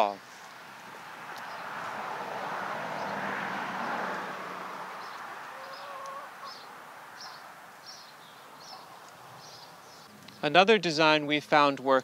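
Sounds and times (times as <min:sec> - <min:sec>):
hen calling: 0:05.0 - 0:10.4
small bird chirping: 0:05.0 - 0:10.5.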